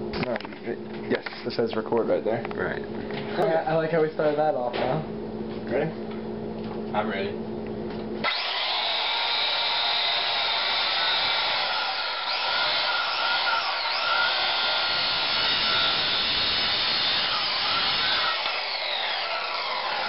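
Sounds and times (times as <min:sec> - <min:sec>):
circular saw cutting meat: 0:08.2 - 0:20.0.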